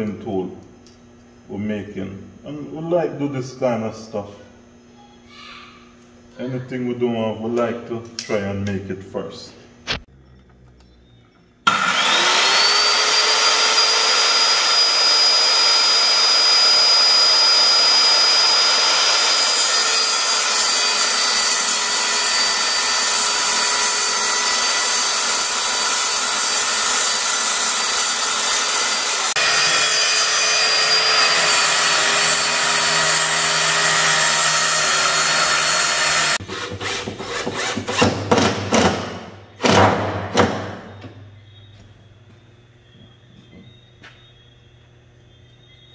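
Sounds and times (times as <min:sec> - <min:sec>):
cordless drill bursts: 0:11.7 - 0:37.0
circular saw cutting wood: 0:11.7 - 0:38.2.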